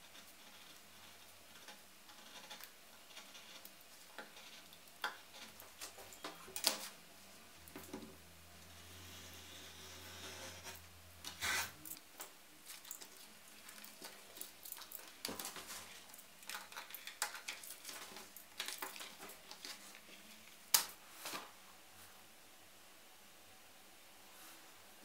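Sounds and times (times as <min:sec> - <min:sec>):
short scrape: 0:11.4 - 0:11.8
paper crinkling and rustling: 0:12.7 - 0:20.6.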